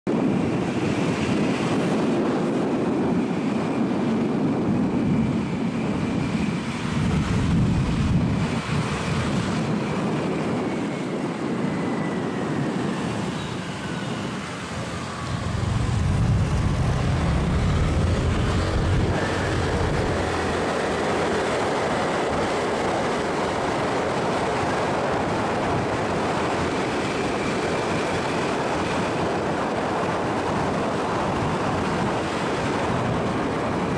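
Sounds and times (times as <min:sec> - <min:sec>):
road and wind noise: 0:00.0 - 0:33.9
scooter engine running: 0:14.7 - 0:24.2.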